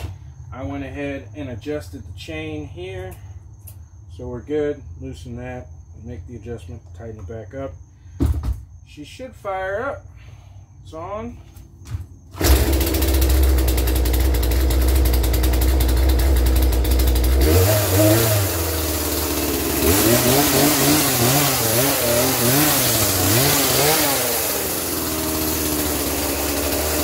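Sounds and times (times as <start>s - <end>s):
chainsaw revving: 12.3s - 27.0s
chainsaw starting on the pull: 12.3s - 27.0s
chainsaw idling: 12.4s - 27.0s.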